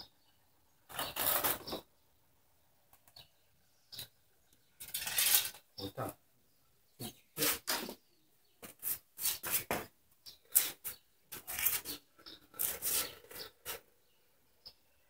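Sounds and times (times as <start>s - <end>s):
rubber gloves rubbing and scraping: 0.9s - 1.9s, 4.8s - 5.7s, 7.4s - 8.0s, 8.6s - 14.0s.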